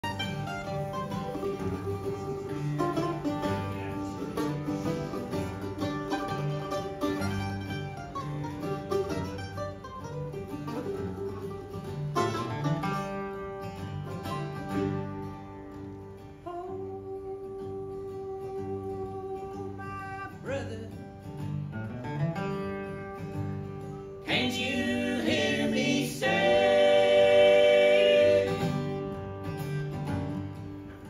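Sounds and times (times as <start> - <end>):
fiddle: 0.0 - 20.4
acoustic guitar: 0.0 - 31.0
bluegrass band playing: 0.0 - 31.0
mandolin: 0.0 - 31.0.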